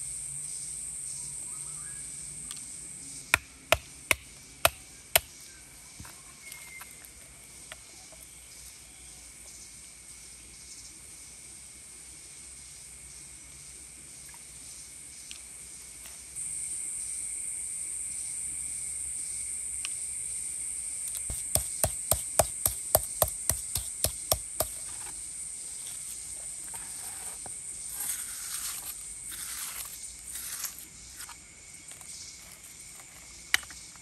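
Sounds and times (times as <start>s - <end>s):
high insect drone: 0.0s - 34.0s
powder scraping by hand: 21.1s - 25.2s, 25.8s - 33.4s
stone pounding on stone: 21.3s - 24.8s.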